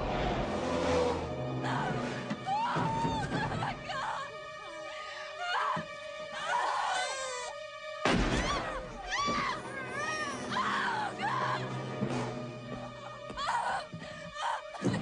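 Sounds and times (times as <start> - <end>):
film score music: 0.0 - 15.0
high-pitched wailing cries: 6.4 - 7.6.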